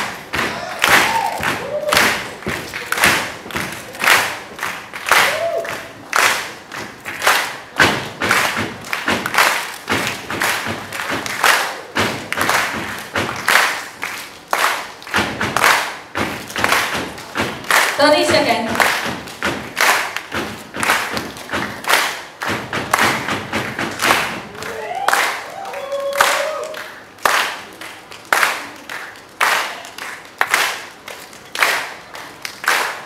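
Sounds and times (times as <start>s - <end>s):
sharp clap-like hits: 0.0s - 33.0s
person shouting: 0.4s - 1.9s
loud thumps: 7.8s - 11.4s, 12.0s - 13.5s, 15.1s - 24.6s.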